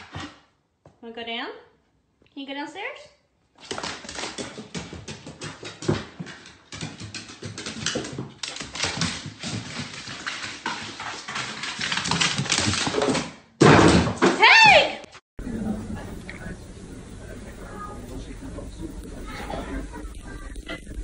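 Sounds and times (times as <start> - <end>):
dog claws clattering on wooden stairs: 3.6 - 14.3.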